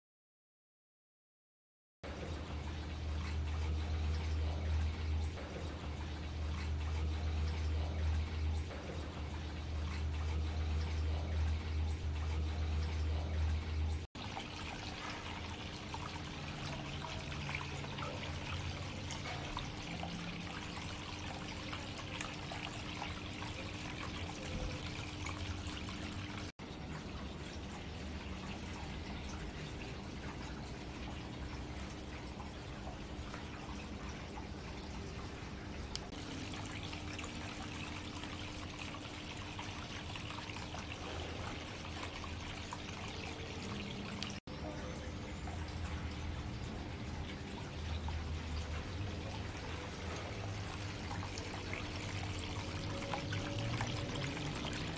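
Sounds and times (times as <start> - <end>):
faint steady hum: 2.1 - 54.9
fountain water trickling and splashing: 2.1 - 54.9.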